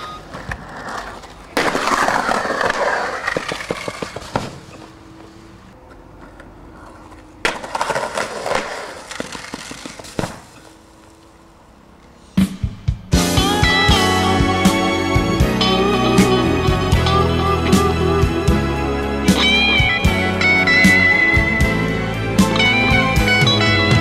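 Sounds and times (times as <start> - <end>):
skateboard clacks: 0.0 - 4.9, 5.8 - 10.6
skateboard wheels rolling on concrete: 0.0 - 24.0.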